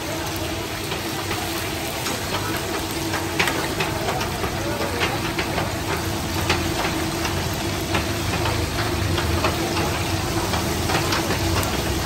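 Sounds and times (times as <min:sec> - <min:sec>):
meat sizzling in hot oil: 0:00.0 - 0:12.0
oil crackling and popping: 0:00.0 - 0:12.0.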